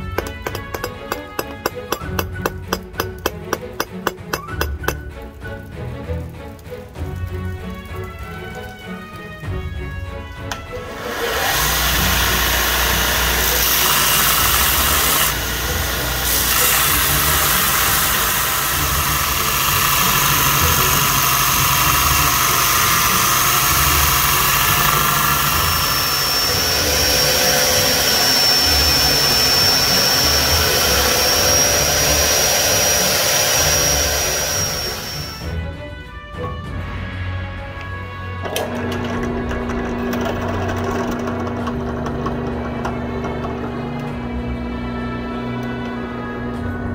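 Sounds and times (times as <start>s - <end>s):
belt grinder grinding steel: 0.0s - 5.0s, 10.5s - 35.5s, 38.4s - 44.2s.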